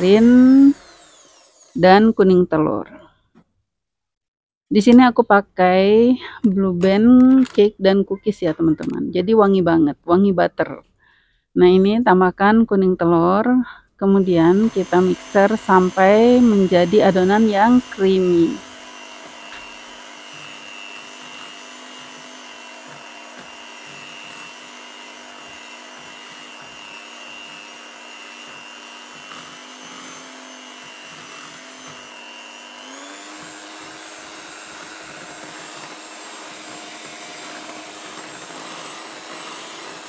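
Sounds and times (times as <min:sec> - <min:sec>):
electric hand mixer whining: 0:00.0 - 0:02.2, 0:14.1 - 0:40.0.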